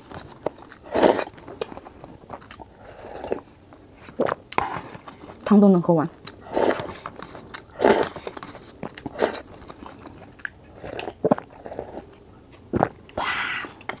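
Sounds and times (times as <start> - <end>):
chewing: 0.0 - 5.5, 6.2 - 14.0
noodle slurping: 0.7 - 1.4, 6.3 - 10.0, 10.7 - 12.1.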